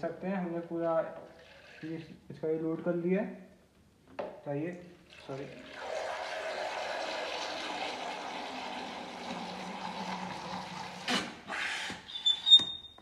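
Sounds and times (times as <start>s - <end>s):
water squirting into plastic mug: 5.1s - 11.4s.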